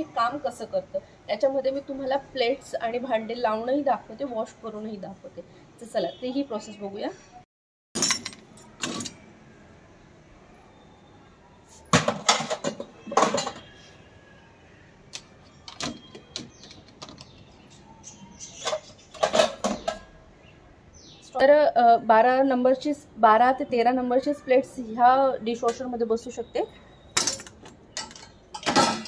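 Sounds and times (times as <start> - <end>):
dishes clinking against wire racks: 8.0 - 9.3, 12.0 - 13.8, 18.5 - 20.2, 27.2 - 29.0.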